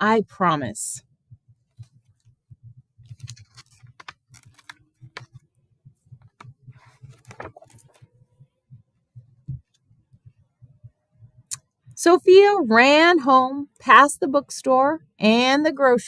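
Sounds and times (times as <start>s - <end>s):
book pages turning: 3.0s - 5.5s, 6.2s - 8.1s.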